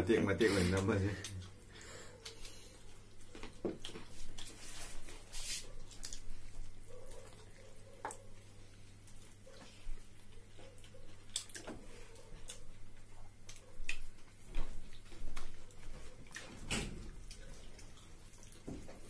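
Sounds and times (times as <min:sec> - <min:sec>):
wet chewing clicks and smacks: 0:05.8 - 0:19.0.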